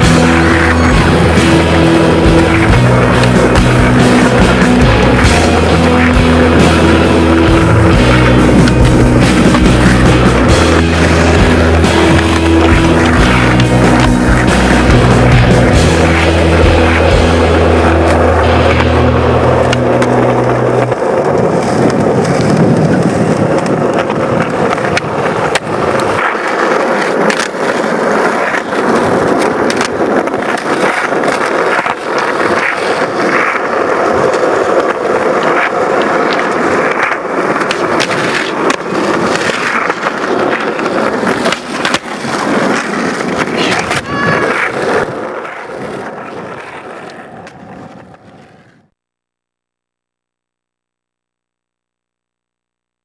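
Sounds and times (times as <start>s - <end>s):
music bass: 0.0s - 20.9s
skateboard clacks: 0.0s - 48.9s
skateboard wheels rolling on concrete: 0.0s - 53.0s.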